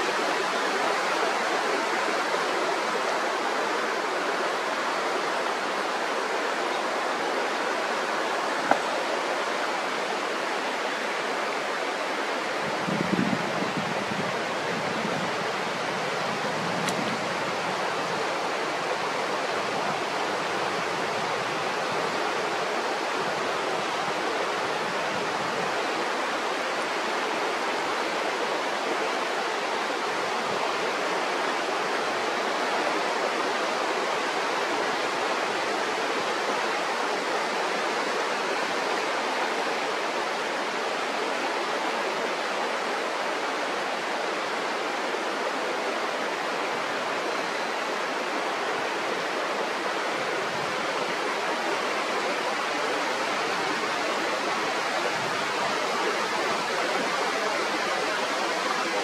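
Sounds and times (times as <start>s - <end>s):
river water rushing: 0.0s - 59.0s.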